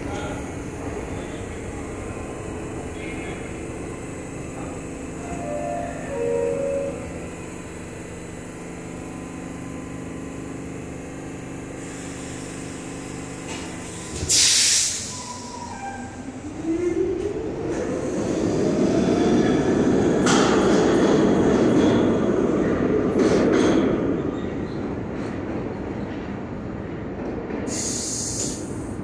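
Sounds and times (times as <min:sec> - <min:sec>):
train motor whine: 0:00.0 - 0:21.6
subway train humming: 0:00.0 - 0:29.0
air hiss: 0:14.1 - 0:16.2, 0:27.7 - 0:28.9.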